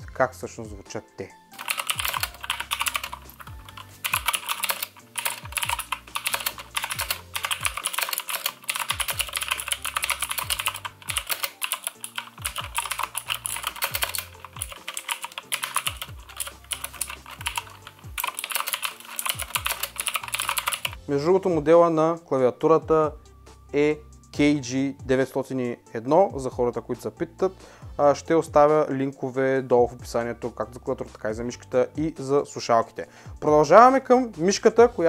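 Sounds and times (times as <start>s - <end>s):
fast mechanical keyboard typing: 1.6s - 21.0s.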